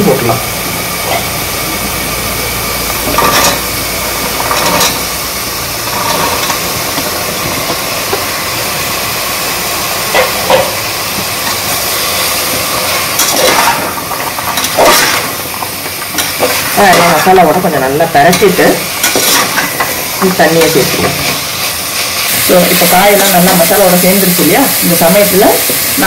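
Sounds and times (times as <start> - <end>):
paste sizzling in oil: 0.0 - 26.0.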